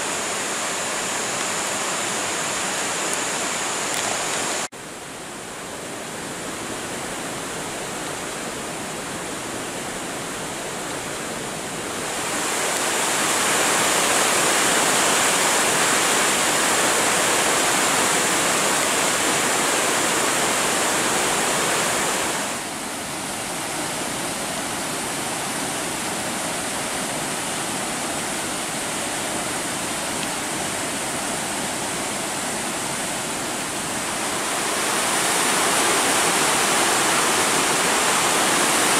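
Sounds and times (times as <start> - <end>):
white water rushing over boulders: 0.0 - 38.9.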